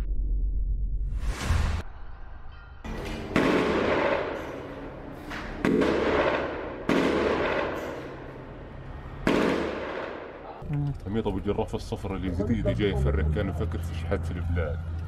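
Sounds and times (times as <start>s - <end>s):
loud blasts: 2.9s - 10.5s.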